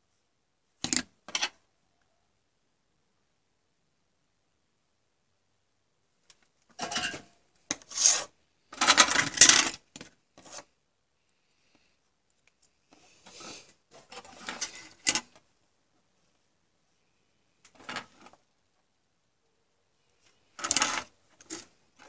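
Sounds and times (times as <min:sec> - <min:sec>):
circuit boards scraping on wood: 0:07.7 - 0:08.3, 0:20.6 - 0:21.7.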